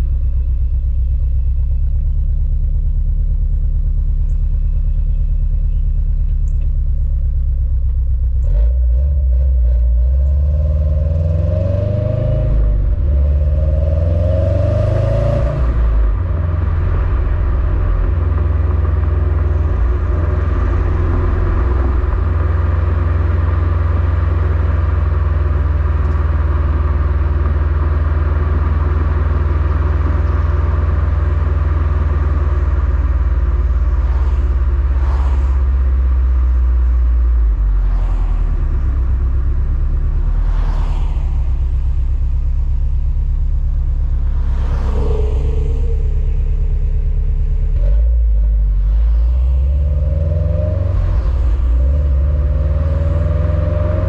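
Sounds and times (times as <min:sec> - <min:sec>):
car exhaust rumbling: 0:00.0 - 0:54.0
car accelerating through gears: 0:08.4 - 0:25.0, 0:32.8 - 0:36.2, 0:47.7 - 0:54.0.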